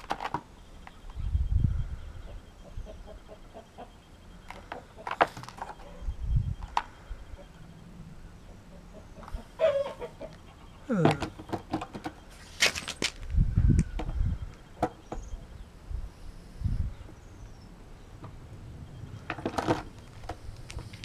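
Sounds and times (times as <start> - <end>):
handling noise: 4.4 - 7.0.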